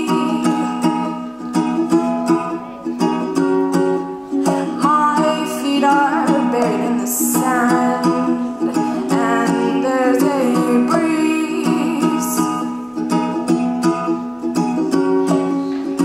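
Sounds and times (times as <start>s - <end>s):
woman singing: 0.0s - 1.2s, 4.4s - 12.8s
ukulele strumming: 0.0s - 16.0s.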